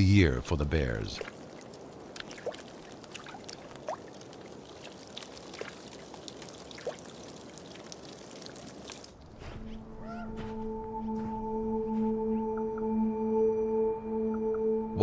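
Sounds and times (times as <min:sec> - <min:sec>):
water running and trickling: 0:01.2 - 0:09.5
music with long held tones: 0:10.3 - 0:15.0.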